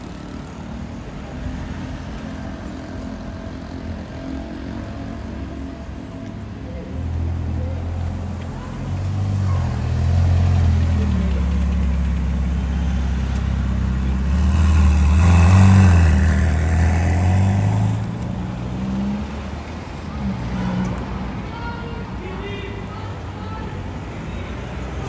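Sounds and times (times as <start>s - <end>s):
vehicle passing close: 9.0s - 19.6s
car engine revving: 9.0s - 20.6s.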